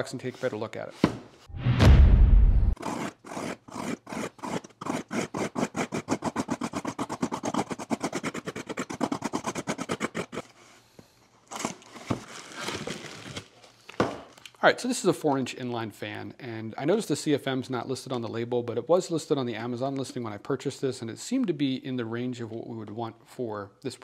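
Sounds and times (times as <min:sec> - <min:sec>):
heavy low bump: 0:01.5 - 0:02.8
knife sawing through cardboard: 0:02.8 - 0:10.5.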